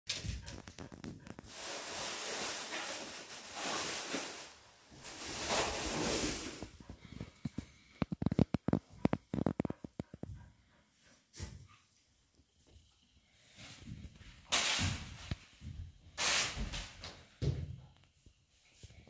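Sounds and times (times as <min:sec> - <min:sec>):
rustling: 0:00.1 - 0:10.5.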